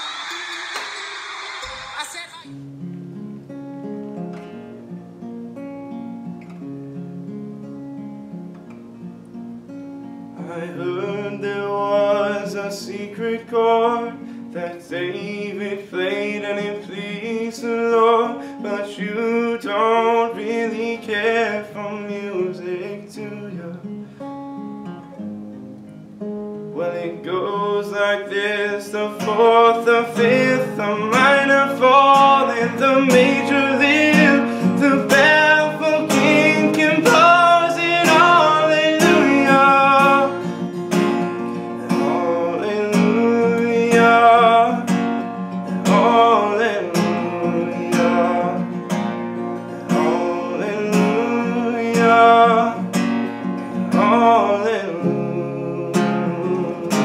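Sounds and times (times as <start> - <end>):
strummed acoustic guitar: 1.6 - 57.0
man singing: 10.4 - 23.9, 26.7 - 45.0, 45.7 - 49.0, 49.6 - 53.0, 53.6 - 57.0.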